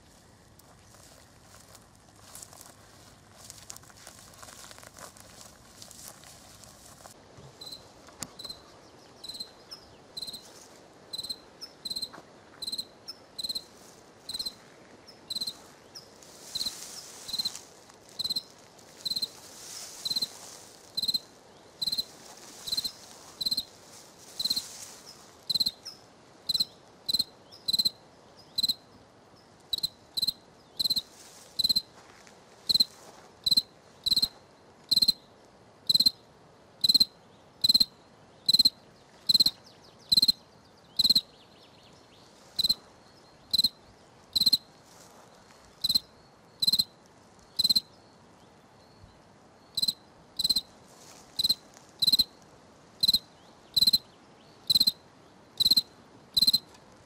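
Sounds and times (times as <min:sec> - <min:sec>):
cricket chirping: 0:07.6 - 0:13.7, 0:14.3 - 0:14.6, 0:15.3 - 0:23.7, 0:24.3 - 0:28.9, 0:29.7 - 0:32.0, 0:32.7 - 0:35.2, 0:35.9 - 0:41.3, 0:42.4 - 0:48.1, 0:49.6 - 0:52.4, 0:53.0 - 0:55.0, 0:55.6 - 0:56.8.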